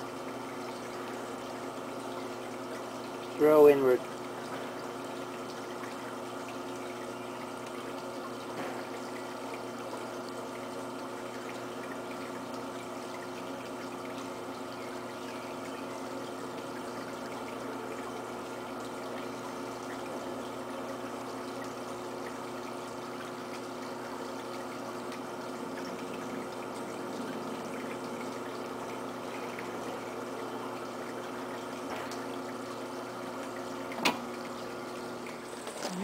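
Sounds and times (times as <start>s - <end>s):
potter's wheel whirring: 35.3s - 36.0s.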